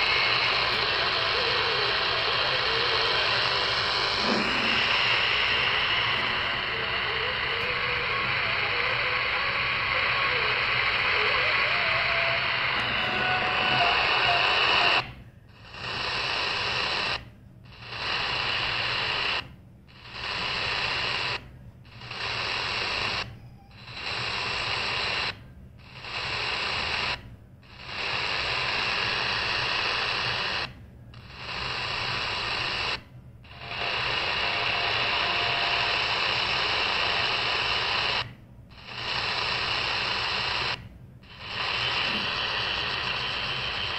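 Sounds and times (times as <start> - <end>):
radio static hiss: 0.0 - 43.9.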